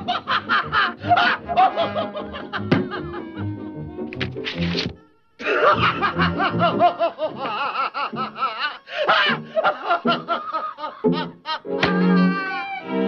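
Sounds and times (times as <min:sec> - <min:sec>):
orchestral cartoon music: 0:00.0 - 0:05.0, 0:05.6 - 0:07.4, 0:11.0 - 0:13.0
cartoon cat laughing: 0:01.0 - 0:03.8.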